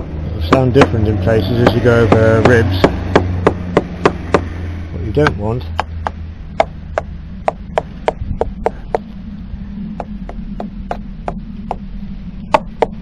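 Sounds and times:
low hum: 0:00.0 - 0:13.0
tool handle knocking on wooden hull: 0:05.2 - 0:09.0.

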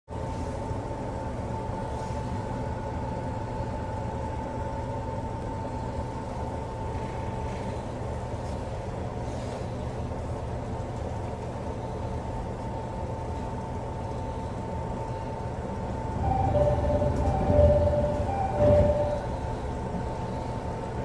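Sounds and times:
low hum of train equipment: 0:00.1 - 0:21.0
high whine: 0:16.1 - 0:20.4.

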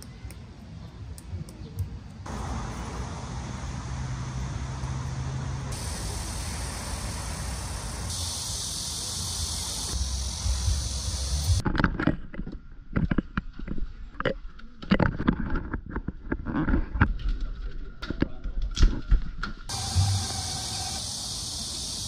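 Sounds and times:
high insect-like drone: 0:02.3 - 0:11.6, 0:19.7 - 0:22.0
steady hiss: 0:02.3 - 0:11.6, 0:19.7 - 0:22.0.

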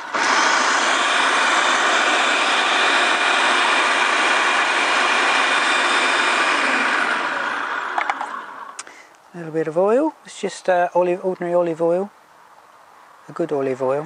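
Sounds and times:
food processor running: 0:00.0 - 0:08.8.

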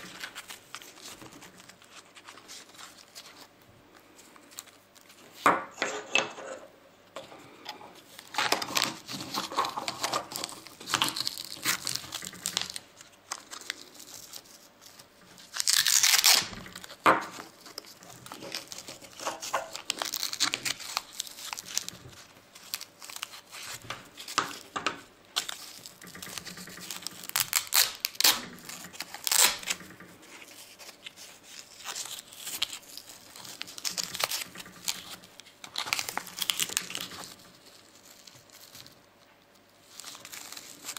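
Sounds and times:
velcro strap ripping: 0:08.4 - 0:22.0, 0:25.4 - 0:29.8.

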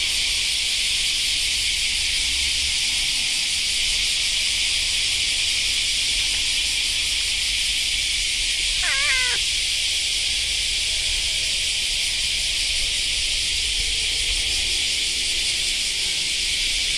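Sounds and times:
cat meowing: 0:08.8 - 0:09.5.

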